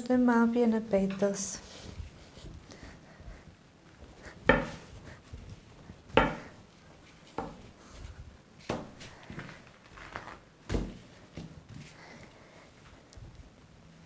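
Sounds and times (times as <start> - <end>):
rolling pin knocking on board: 4.5 - 4.8, 6.1 - 6.5.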